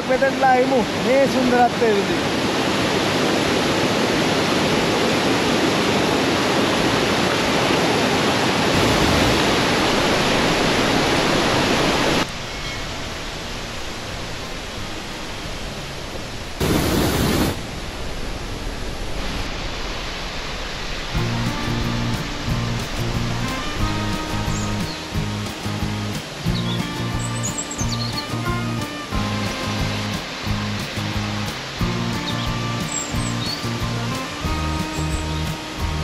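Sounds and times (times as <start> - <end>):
waterfall rushing: 0.0 - 36.0
music: 21.2 - 36.0.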